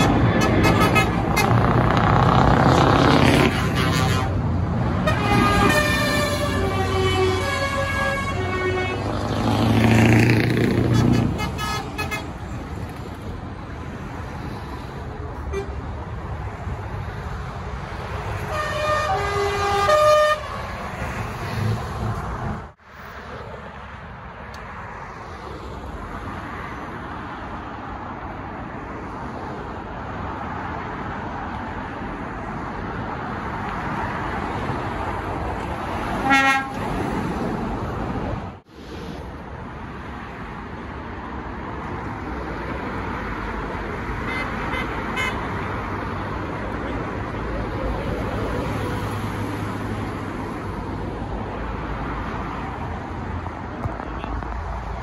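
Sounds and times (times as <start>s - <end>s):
engine and traffic noise: 0.0s - 55.0s
lorries passing: 0.0s - 55.0s
lorry horn: 3.2s - 4.4s, 5.0s - 9.1s, 18.5s - 20.7s, 36.2s - 36.9s.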